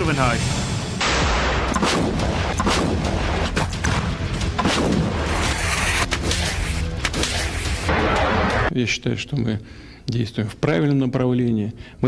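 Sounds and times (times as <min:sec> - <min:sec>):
gunshots: 0:01.0 - 0:08.7.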